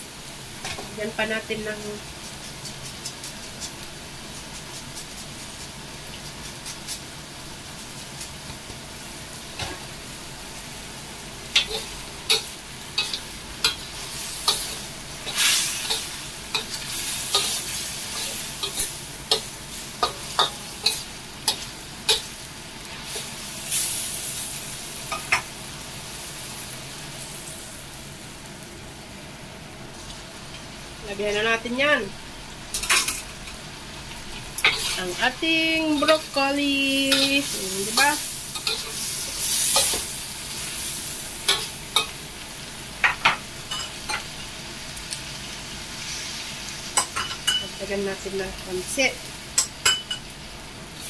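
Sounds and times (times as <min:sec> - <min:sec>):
food sizzling in a wok: 0:00.0 - 0:51.0
metal spatula scraping wok: 0:11.6 - 0:25.4, 0:34.6 - 0:42.2.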